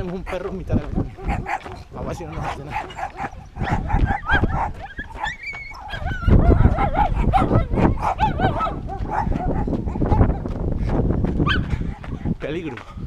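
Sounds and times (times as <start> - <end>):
dog barking: 0.3 - 10.5, 11.4 - 12.8.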